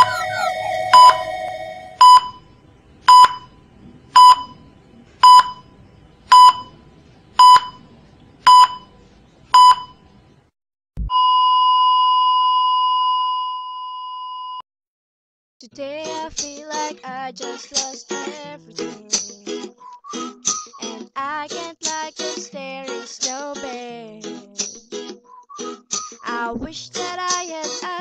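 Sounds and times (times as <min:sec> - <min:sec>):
heart monitor beeps: 0:00.0 - 0:02.5, 0:03.1 - 0:03.6, 0:04.2 - 0:04.6, 0:05.2 - 0:05.7, 0:06.3 - 0:06.7, 0:07.4 - 0:07.8, 0:08.5 - 0:08.9, 0:09.6 - 0:10.0, 0:11.0 - 0:14.6
heart monitor flatline tone: 0:00.0 - 0:02.5, 0:03.1 - 0:03.6, 0:04.2 - 0:04.6, 0:05.2 - 0:05.7, 0:06.3 - 0:06.7, 0:07.4 - 0:07.8, 0:08.5 - 0:08.9, 0:11.0 - 0:14.6.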